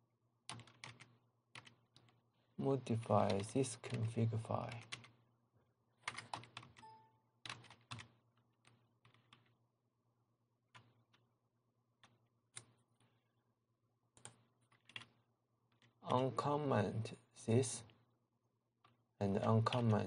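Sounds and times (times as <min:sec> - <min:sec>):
computer keyboard keystrokes: 0:00.5 - 0:02.2, 0:04.7 - 0:05.1, 0:06.0 - 0:09.5, 0:14.2 - 0:15.1.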